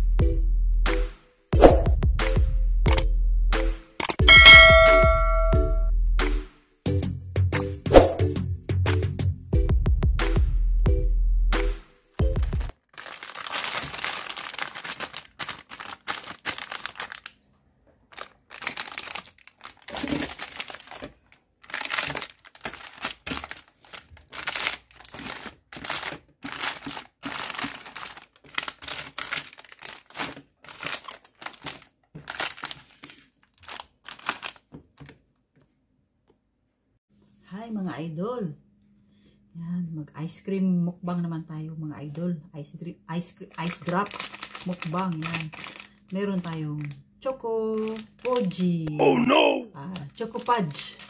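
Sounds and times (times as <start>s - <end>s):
plastic wrappers crinkling: 12.4s - 35.2s, 43.4s - 48.8s, 49.8s - 51.0s.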